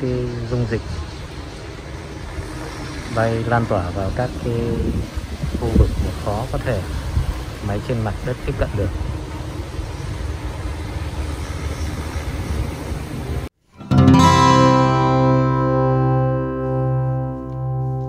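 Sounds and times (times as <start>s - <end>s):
drone flying overhead: 0.0s - 13.5s, 14.2s - 18.0s
acoustic guitar music: 13.6s - 18.0s.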